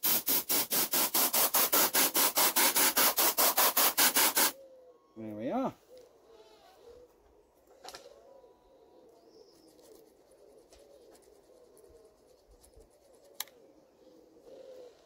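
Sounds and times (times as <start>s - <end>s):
bird cooing: 4.6s - 15.0s.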